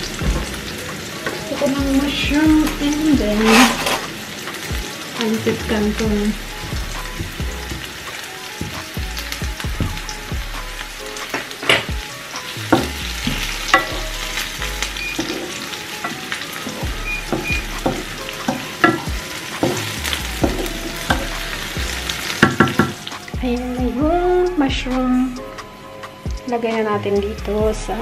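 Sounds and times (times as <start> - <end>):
onion sizzling in oil: 0.0 - 27.2
spatula scraping a pan: 3.2 - 4.2, 12.7 - 22.9.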